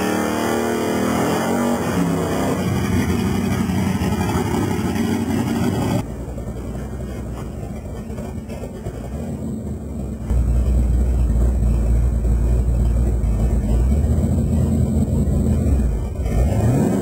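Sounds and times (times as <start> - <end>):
engine revving hard: 0.0 - 6.0, 13.8 - 17.0
low engine rumble inside car: 6.0 - 16.5.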